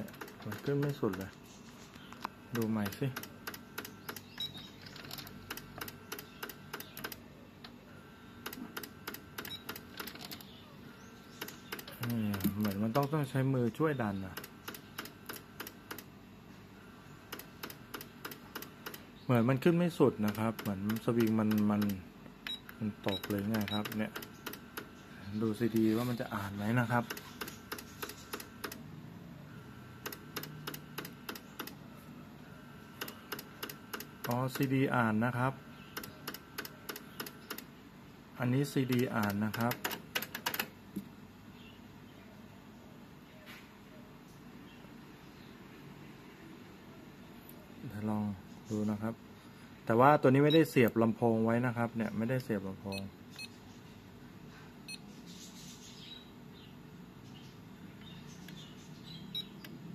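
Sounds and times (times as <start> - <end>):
faint mechanical clicking: 0.0 - 7.8, 8.4 - 10.6, 11.2 - 13.3, 14.3 - 16.2, 17.2 - 19.2, 20.2 - 28.9, 30.0 - 34.9, 35.8 - 37.7, 38.6 - 41.1, 58.0 - 59.8
faint steady whir: 0.0 - 59.9.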